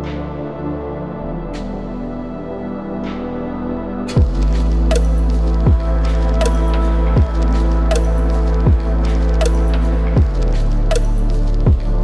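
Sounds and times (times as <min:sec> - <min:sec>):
ambient background music: 0:00.0 - 0:12.0.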